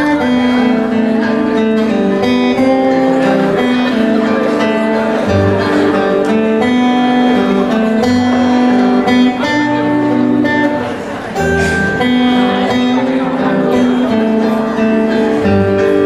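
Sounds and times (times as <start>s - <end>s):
acoustic guitar strumming: 0.0s - 16.0s
melody of long held notes: 0.0s - 16.0s.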